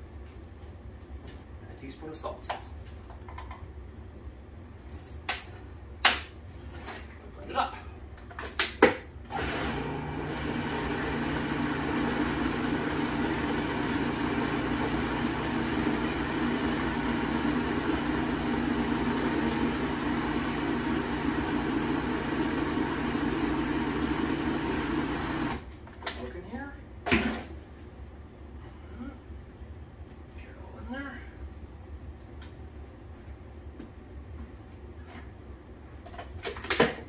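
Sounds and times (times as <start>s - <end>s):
food processor running: 9.3s - 25.6s.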